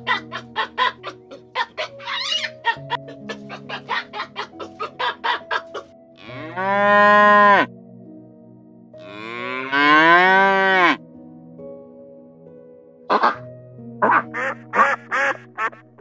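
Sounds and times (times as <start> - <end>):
soft background music: 0.0 - 16.0
hen clucking: 0.1 - 5.8
cow mooing: 6.2 - 7.7, 9.0 - 11.0.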